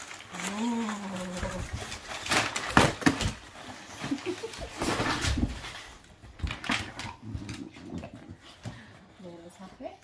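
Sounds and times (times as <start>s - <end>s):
wrapping paper rustling: 0.0s - 7.8s.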